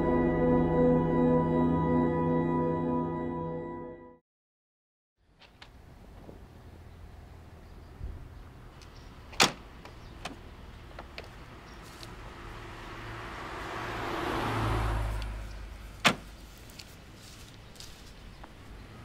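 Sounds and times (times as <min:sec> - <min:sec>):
car door thunks: 0:16.0 - 0:16.3.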